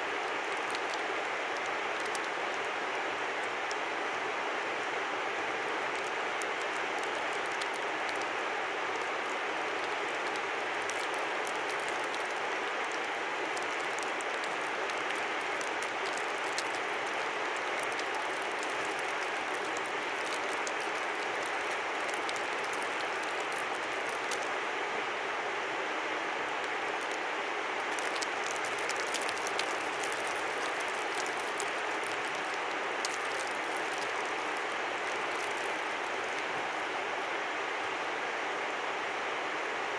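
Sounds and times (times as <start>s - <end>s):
river flowing: 0.0s - 39.9s
small high ticks: 0.5s - 2.6s, 6.0s - 8.3s, 9.0s - 24.6s, 27.9s - 36.8s.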